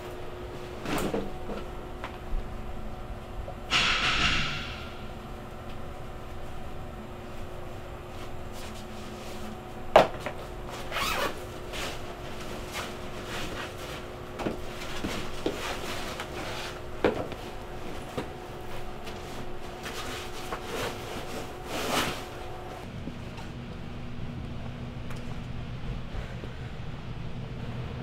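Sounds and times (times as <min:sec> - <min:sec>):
steady low hum: 0:00.0 - 0:28.0
handling knocks and rustling: 0:10.0 - 0:23.5.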